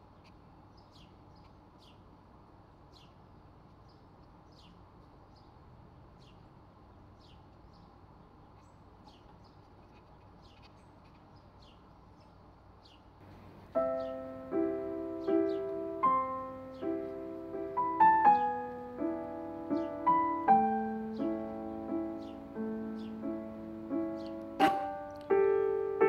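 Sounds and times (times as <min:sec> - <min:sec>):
gentle piano music: 0:13.2 - 0:26.0.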